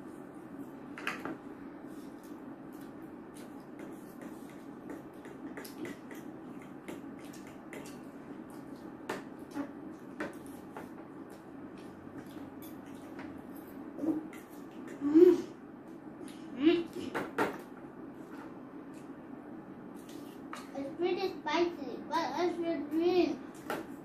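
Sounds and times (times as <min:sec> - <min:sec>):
low room hum: 0:00.0 - 0:24.0.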